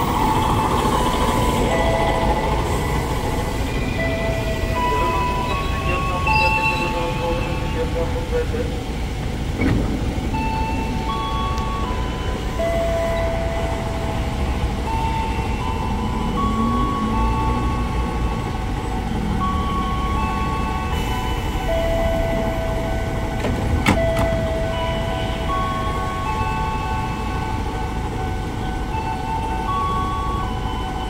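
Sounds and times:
electronic melody over speakers: 0:00.0 - 0:31.0
train doors clacking shut: 0:09.2 - 0:13.4, 0:22.1 - 0:26.2.

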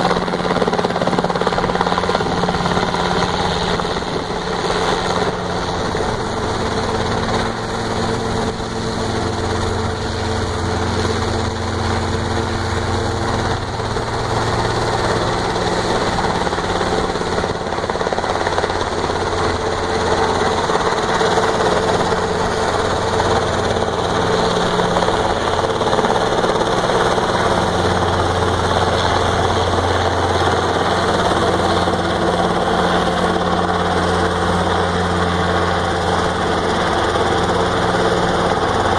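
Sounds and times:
helicopter engine and rotors: 0:00.0 - 0:38.9.

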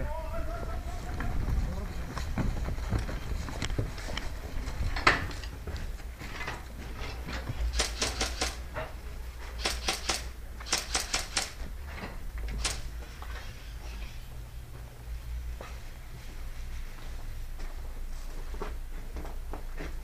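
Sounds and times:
low rumble of handling noise: 0:00.0 - 0:10.7, 0:11.5 - 0:20.0
airsoft guns firing rapid shots: 0:07.7 - 0:08.6, 0:09.6 - 0:11.6.

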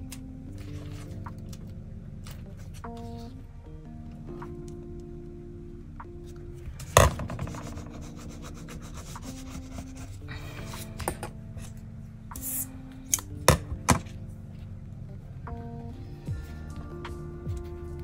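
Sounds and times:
soft background music: 0:00.0 - 0:18.0
hands rubbing paper: 0:07.4 - 0:10.9.

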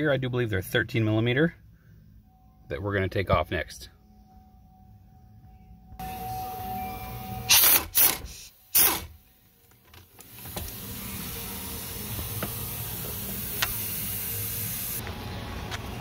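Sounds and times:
air ratchet running: 0:07.5 - 0:09.2, 0:10.3 - 0:15.0.

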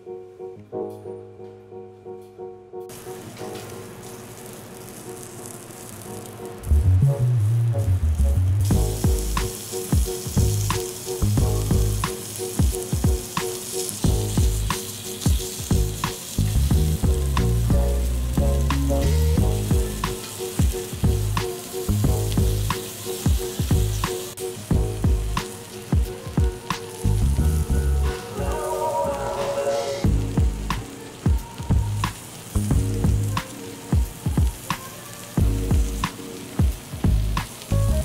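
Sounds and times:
ribs sizzling on grill: 0:02.9 - 0:38.0
background music with beat: 0:06.8 - 0:38.0.

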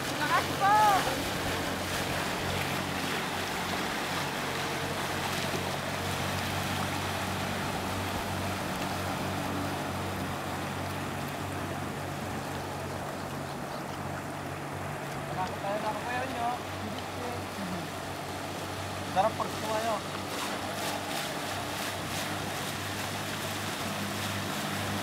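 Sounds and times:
distant jet ski engine: 0:00.0 - 0:25.0
water noise: 0:00.0 - 0:25.0
wind: 0:00.0 - 0:25.0.

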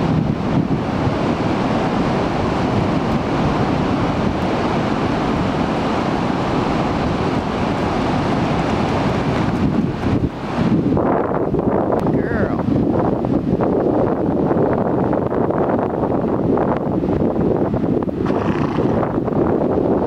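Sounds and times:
ocean surf breaking: 0:00.0 - 0:13.6
wind on microphone: 0:00.0 - 0:20.0.

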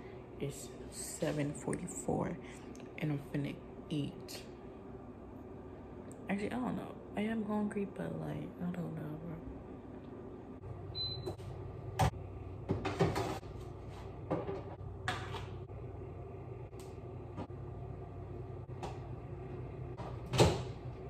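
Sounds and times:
low hum: 0:13.4 - 0:21.0.

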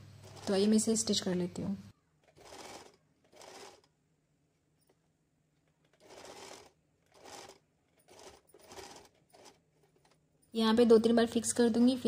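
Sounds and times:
electric sewing machine stitching: 0:00.0 - 0:00.8, 0:02.2 - 0:03.9, 0:05.8 - 0:10.2.

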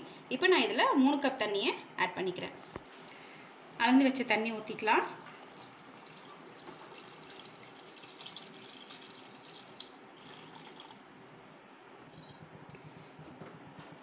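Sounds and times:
water pouring into liquid: 0:02.9 - 0:11.6.

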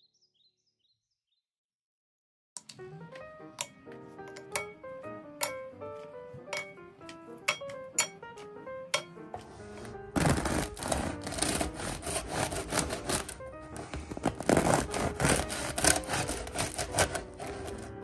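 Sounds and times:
light background music: 0:02.6 - 0:18.0
bread knife sawing crusty bread: 0:09.6 - 0:18.0.

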